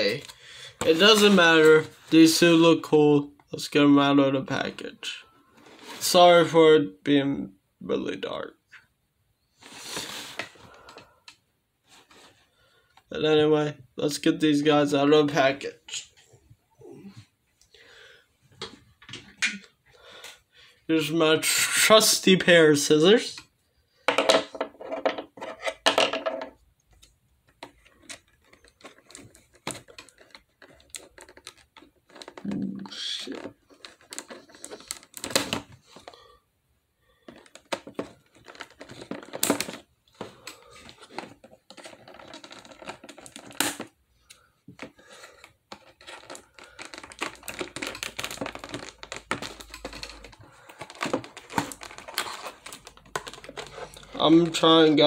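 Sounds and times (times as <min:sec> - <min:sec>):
packaging handling rustles: 0:27.6 - 0:36.2, 0:37.2 - 0:44.0, 0:44.8 - 0:55.0.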